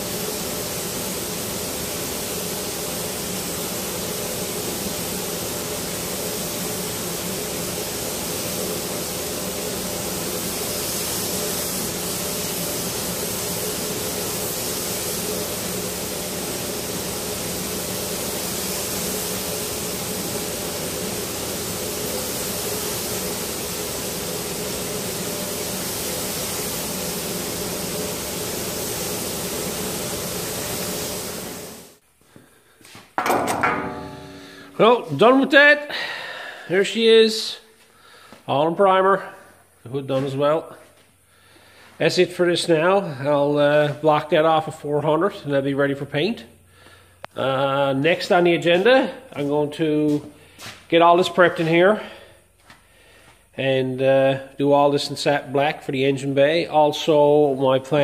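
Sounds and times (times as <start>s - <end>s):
spray gun hissing: 0.0s - 32.0s, 33.7s - 44.8s
low hum: 33.3s - 35.2s.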